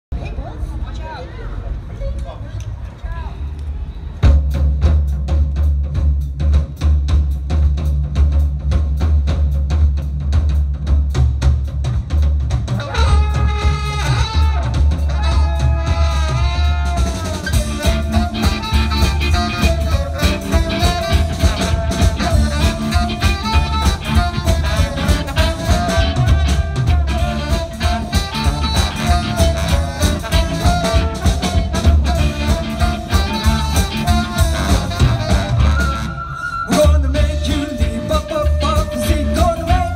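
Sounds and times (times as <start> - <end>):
drum kit and bass groove: 4.2 - 39.9
horn section playing: 12.7 - 39.9.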